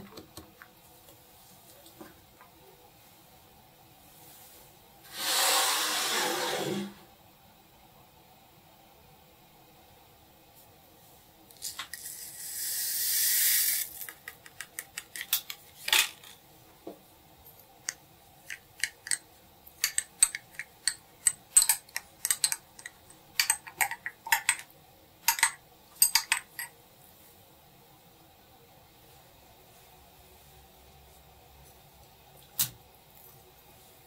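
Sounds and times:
brief hiss: 5.1s - 7.0s
utensils clinking against dishes: 19.8s - 24.7s, 25.3s - 26.7s.

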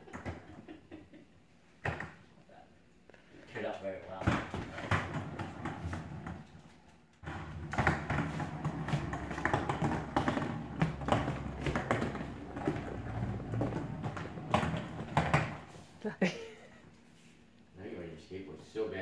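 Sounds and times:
skateboard rolling on wooden floor: 4.2s - 16.0s.

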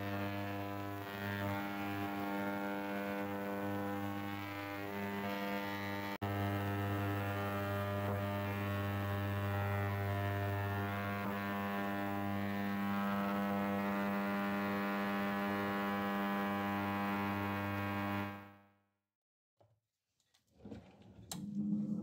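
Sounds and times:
ultrasonic cleaner humming: 21.3s - 22.0s.

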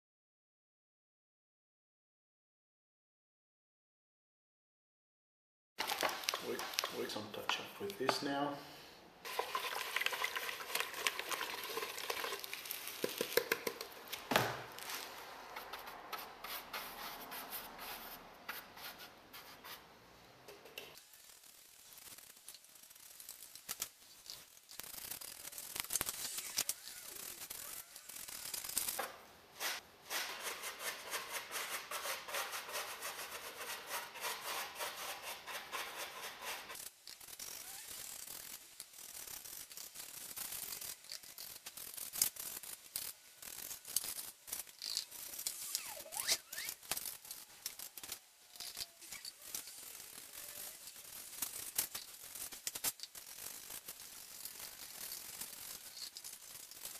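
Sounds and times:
brush scraping grout on rough surface: 9.3s - 13.9s, 14.7s - 19.8s, 29.6s - 56.9s.

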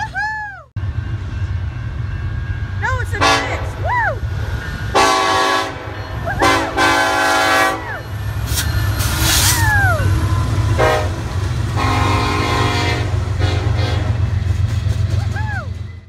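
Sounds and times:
person whooping: 0.0s - 0.7s, 3.8s - 4.3s, 6.2s - 6.6s, 9.4s - 10.2s, 15.2s - 15.8s
diesel locomotive rumble: 0.0s - 16.0s
train air horn blasts: 3.2s - 3.8s, 4.9s - 8.0s, 10.7s - 14.4s.

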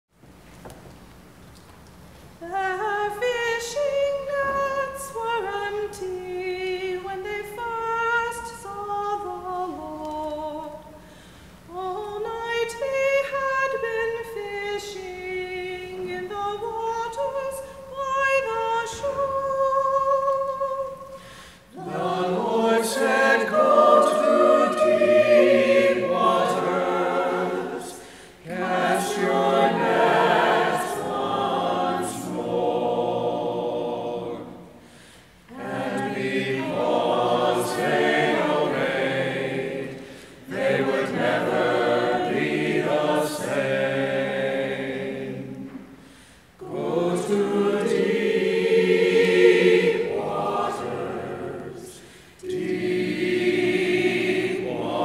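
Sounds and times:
woman singing: 2.4s - 10.8s, 11.7s - 21.1s
choir singing in harmony: 2.4s - 11.0s, 11.7s - 55.0s.

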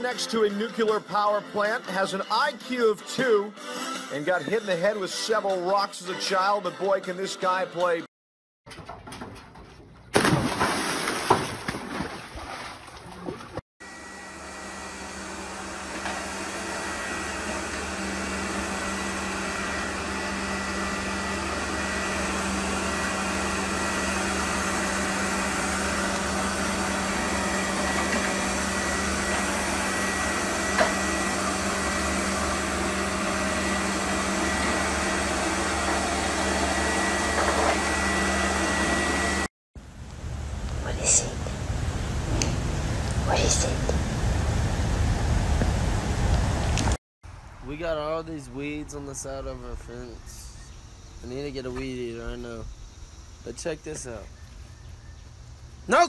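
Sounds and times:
robot vacuum cleaner running: 13.9s - 39.5s.

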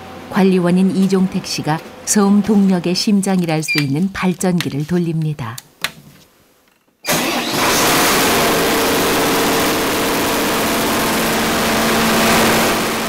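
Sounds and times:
diesel generator running: 7.1s - 13.0s.

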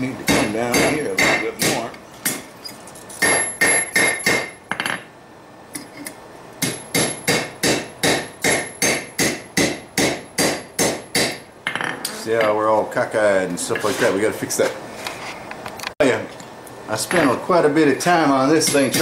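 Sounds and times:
hammer striking steel on anvil: 0.2s - 2.5s, 3.2s - 5.0s, 6.6s - 11.5s.

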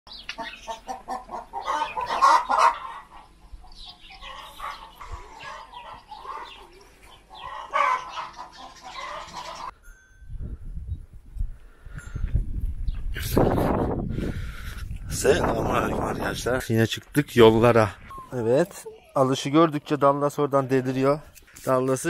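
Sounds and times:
chickens clucking and cackling: 0.2s - 9.8s.

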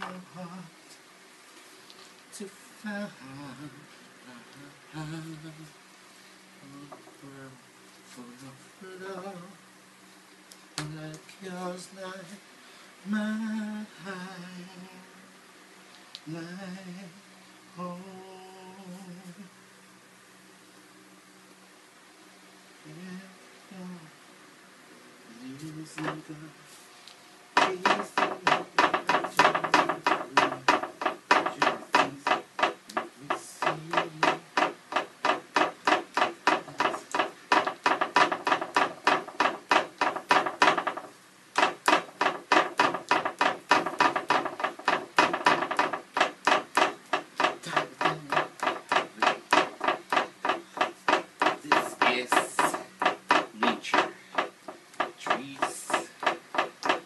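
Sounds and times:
hand patting paint onto canvas: 27.6s - 57.0s.

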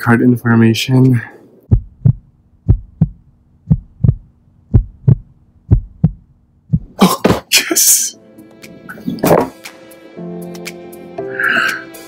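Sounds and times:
heartbeat thumps: 1.7s - 7.0s.

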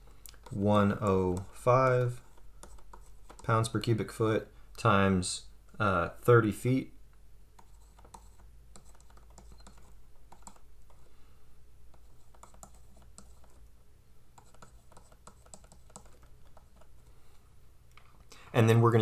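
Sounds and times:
stylus tapping on tablet screen: 14.4s - 16.9s.

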